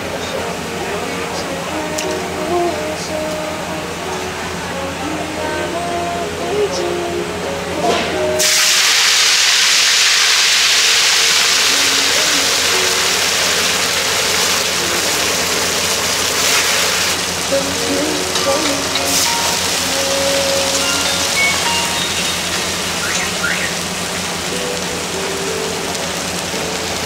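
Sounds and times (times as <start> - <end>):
food sizzling in hot oil: 8.0 - 27.0.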